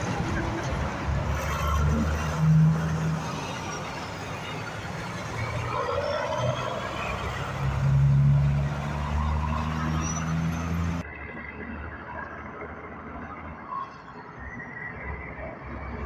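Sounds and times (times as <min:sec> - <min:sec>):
diesel truck engine accelerating: 0:00.0 - 0:11.2.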